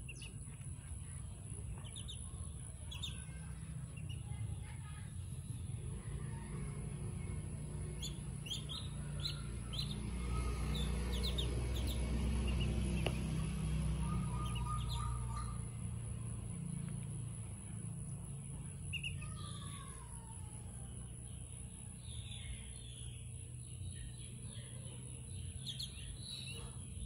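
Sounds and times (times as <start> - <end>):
ducklings peeping: 0.0 - 4.6, 5.2 - 16.1, 18.8 - 19.6.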